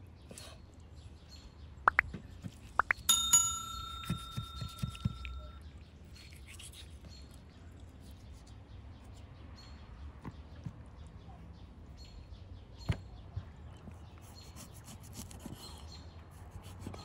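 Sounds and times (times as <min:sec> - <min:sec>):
bell dinging: 0:03.1 - 0:05.6.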